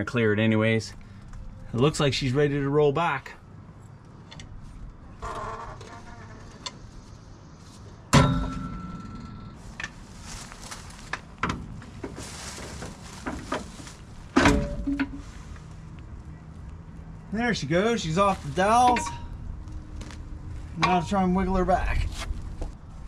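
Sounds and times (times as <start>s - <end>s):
sharp metal clanks: 8.1s - 9.6s
scraping and shuffling: 9.6s - 16.0s, 17.6s - 23.0s.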